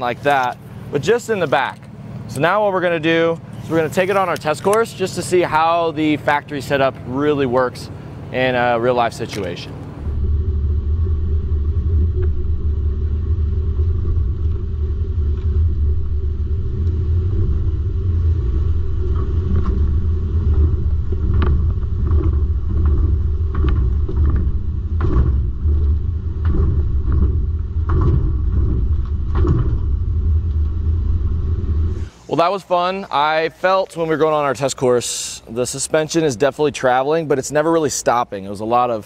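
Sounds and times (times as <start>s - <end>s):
pickup truck rumble: 0.0s - 32.3s
suspension knocks and clatters: 9.2s - 32.1s.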